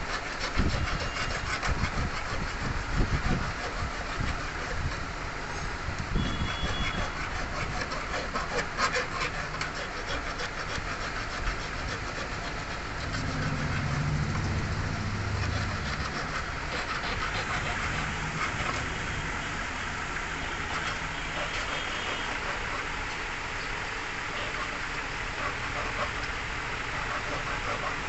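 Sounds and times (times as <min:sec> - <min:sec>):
hand file rasping on metal: 0:00.0 - 0:05.2, 0:06.2 - 0:14.2, 0:15.0 - 0:19.3, 0:20.6 - 0:23.0, 0:24.3 - 0:28.0
low rumble: 0:13.0 - 0:20.0.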